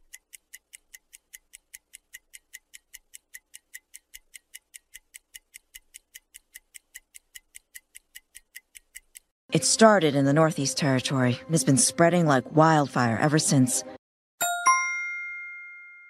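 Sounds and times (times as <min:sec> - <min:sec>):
sharp high ticking: 0:00.1 - 0:09.3.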